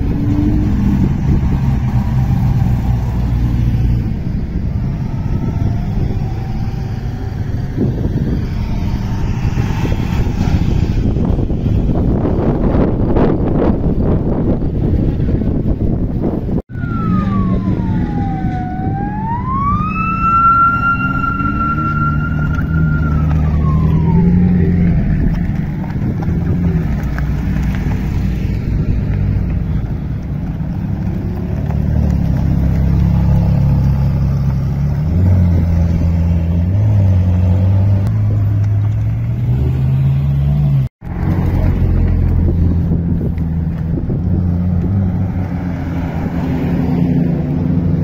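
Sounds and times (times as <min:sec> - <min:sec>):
car engines at low revs: 0:00.0 - 0:48.0
high whine: 0:16.7 - 0:26.0.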